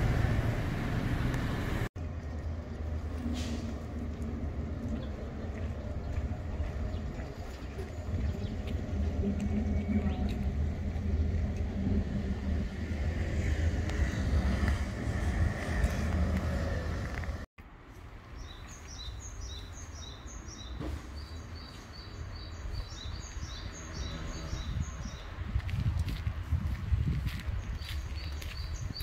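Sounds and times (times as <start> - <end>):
steady low rumble: 0.0 - 17.5.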